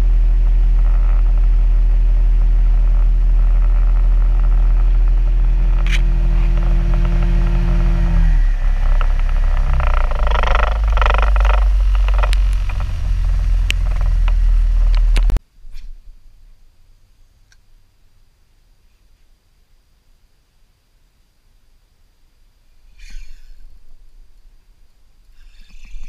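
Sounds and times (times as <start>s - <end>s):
outboard motor running: 0.0s - 15.4s
rough rumble with clattering knocks: 0.0s - 15.4s.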